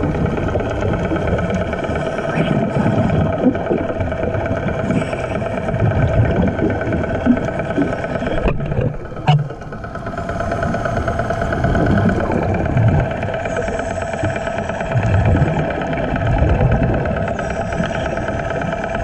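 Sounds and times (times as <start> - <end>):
engine droning underwater: 0.0 - 19.0
low rumbling: 0.0 - 19.0.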